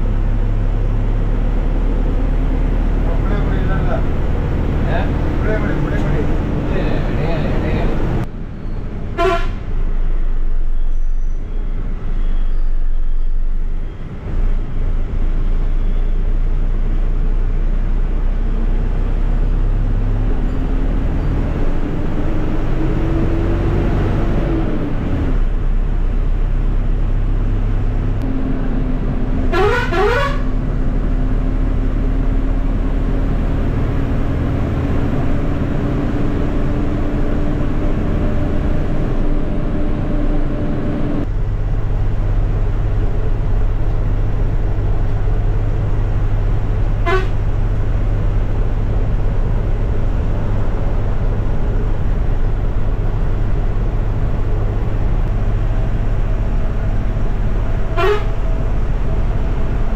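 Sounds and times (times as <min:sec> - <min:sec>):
bus diesel engine running: 0:00.0 - 0:59.9
bus horn: 0:09.1 - 0:09.7, 0:29.4 - 0:30.7, 0:47.0 - 0:47.6, 0:57.8 - 0:58.7.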